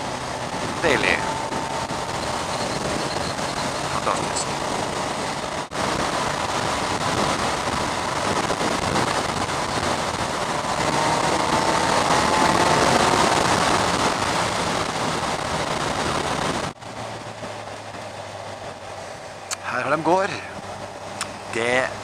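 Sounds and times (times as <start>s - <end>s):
wind rush over microphone: 0.0s - 19.1s
tyre noise on wet asphalt: 0.0s - 22.0s
faint tone: 0.8s - 4.5s.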